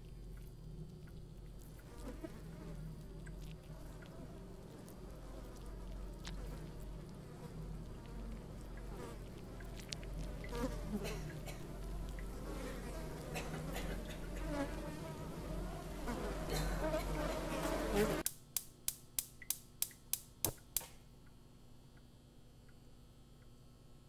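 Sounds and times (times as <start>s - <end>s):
flies buzzing: 0.0s - 18.3s
low steady hum: 0.0s - 24.0s
faint clicks: 3.1s - 12.3s.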